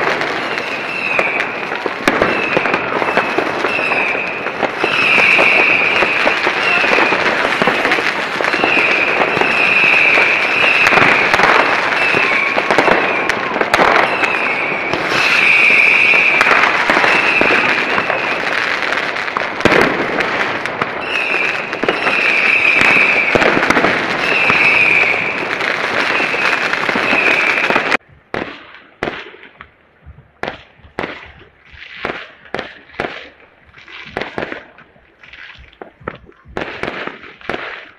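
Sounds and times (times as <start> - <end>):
fireworks crackling and banging: 0.0 - 37.9
whistling fireworks: 0.0 - 37.9.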